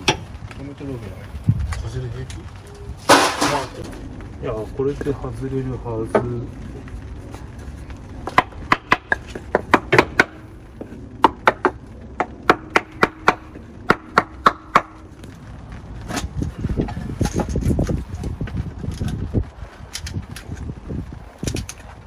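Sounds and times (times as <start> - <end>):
rough handling noise: 0.0 - 22.0
hammer striking wooden block: 8.3 - 10.4, 11.2 - 15.0.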